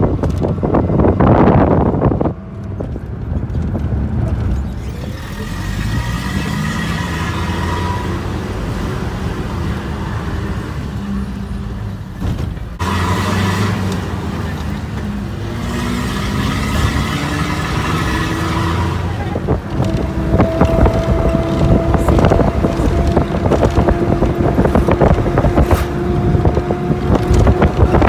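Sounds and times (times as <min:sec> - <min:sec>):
wind buffeting microphone: 0:00.0 - 0:05.0, 0:14.3 - 0:28.0
vehicle engine rumbling: 0:00.0 - 0:28.0.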